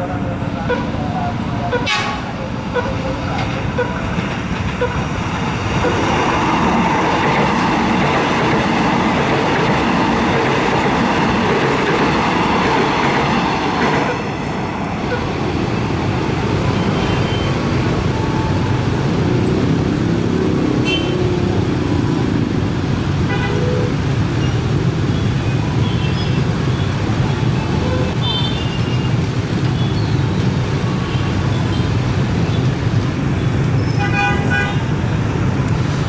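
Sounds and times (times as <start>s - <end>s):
electric train passing: 0.0s - 25.8s
motorcycle engines revving: 16.4s - 23.2s.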